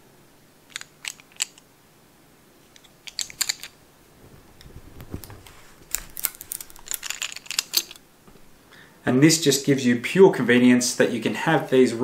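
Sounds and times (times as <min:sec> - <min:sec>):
clicks and rustles of handling: 0:00.7 - 0:01.7, 0:02.6 - 0:08.5
low rubbing sound: 0:04.0 - 0:06.9.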